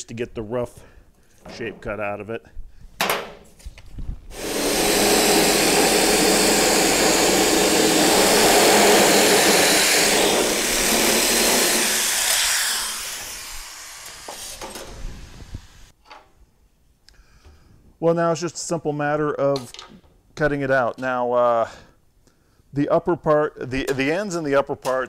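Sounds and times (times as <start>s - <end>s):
electric shears cutting sheet metal: 4.3s - 15.9s.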